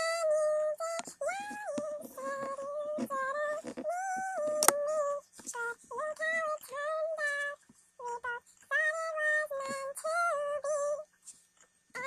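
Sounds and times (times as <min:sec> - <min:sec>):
girl singing in high voice: 0:00.0 - 0:11.1
sharp click: 0:04.6 - 0:04.8.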